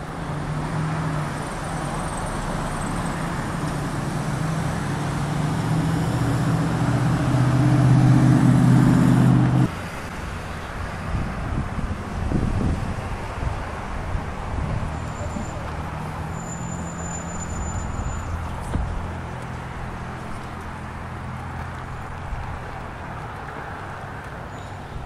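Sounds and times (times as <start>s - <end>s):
car engine hum: 0.0s - 16.4s
outdoor noise: 0.0s - 25.0s
road noise: 0.0s - 25.0s.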